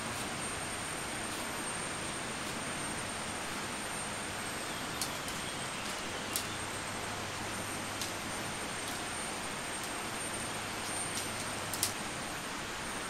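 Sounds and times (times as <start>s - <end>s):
tent pole sections snapping: 5.0s - 6.6s, 10.8s - 12.0s.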